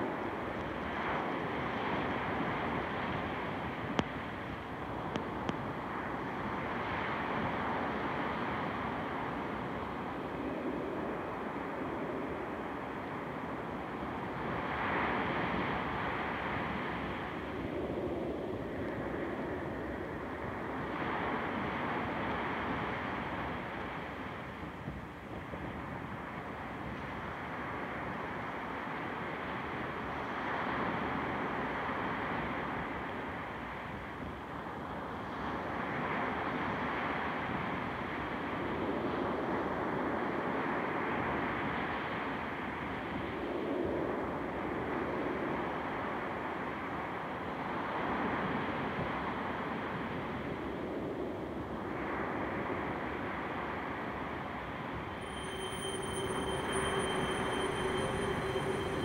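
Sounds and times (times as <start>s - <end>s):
dark ambient rushing drone: 55.1s - 59.0s.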